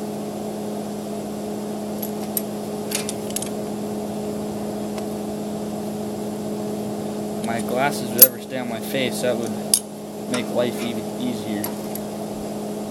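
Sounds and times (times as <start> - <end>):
welding machine humming: 0.0 - 12.9
metal on metal clicks: 2.0 - 3.5.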